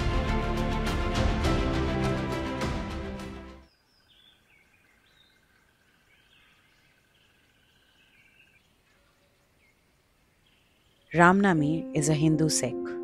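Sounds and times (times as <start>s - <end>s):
music: 0.0s - 3.6s, 11.2s - 13.0s.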